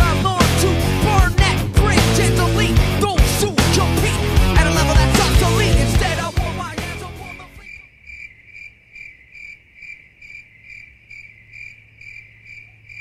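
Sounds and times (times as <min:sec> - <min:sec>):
music: 0:00.0 - 0:07.6
cricket chirping: 0:07.2 - 0:13.0.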